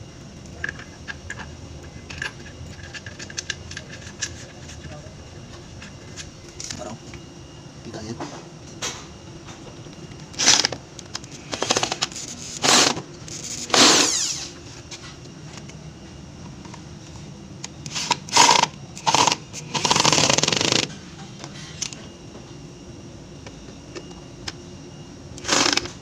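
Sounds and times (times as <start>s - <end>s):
power drill driving screws: 12.6s - 14.5s, 25.4s - 26.0s.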